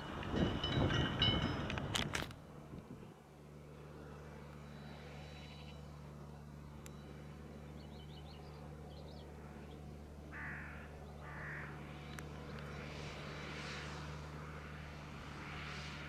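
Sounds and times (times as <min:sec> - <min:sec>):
tractor engine droning: 0:00.0 - 0:16.0
crow cawing: 0:10.3 - 0:11.8.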